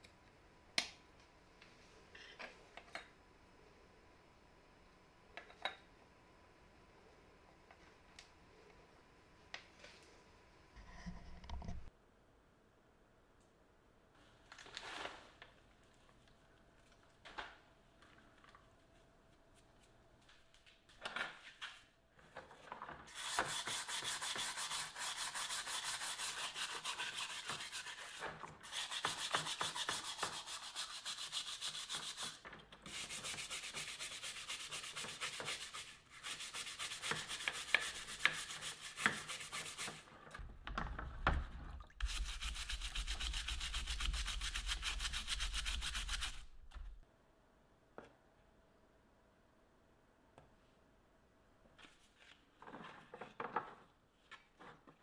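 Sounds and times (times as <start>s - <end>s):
brush scrubbing plastic in water: 23.1s - 40.0s, 42.0s - 46.4s.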